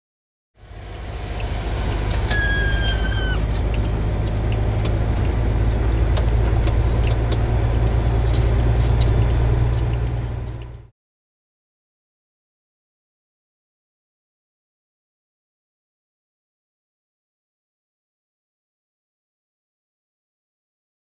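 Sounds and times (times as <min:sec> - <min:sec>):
truck diesel engine rumbling: 0:00.6 - 0:10.9
brief high squeal: 0:02.2 - 0:03.7.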